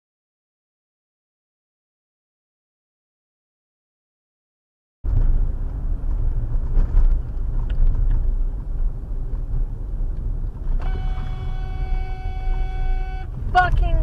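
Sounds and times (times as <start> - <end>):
car driving heard from cabin: 5.1 - 14.0
car horn: 10.8 - 13.8.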